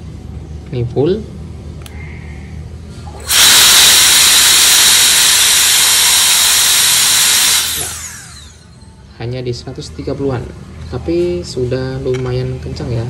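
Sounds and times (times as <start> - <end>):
jet fan whining: 3.1 - 9.4.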